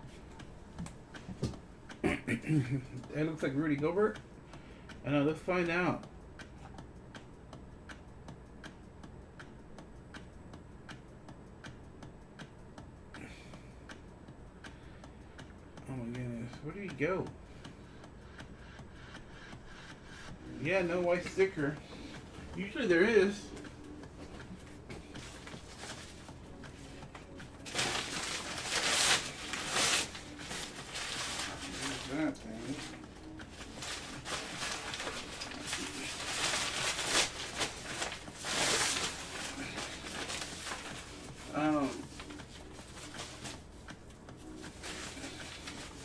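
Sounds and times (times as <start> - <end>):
steady ticking: 2.9 - 46.0
soft rustle: 25.1 - 43.9.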